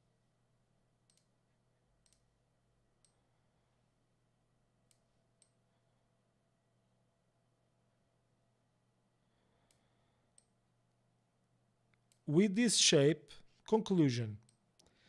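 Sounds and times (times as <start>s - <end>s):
faint computer mouse clicks: 1.1s - 1.3s, 2.0s - 2.3s.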